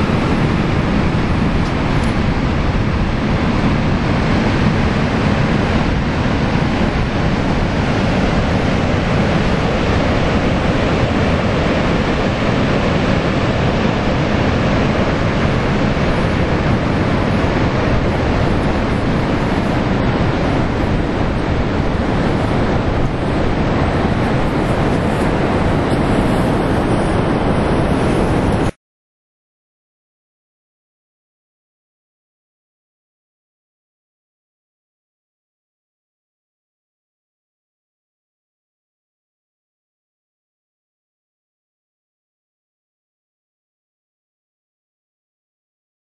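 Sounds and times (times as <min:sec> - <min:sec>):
ocean surf breaking: 0:00.0 - 0:28.8
wind rumbling on microphone: 0:00.0 - 0:28.8.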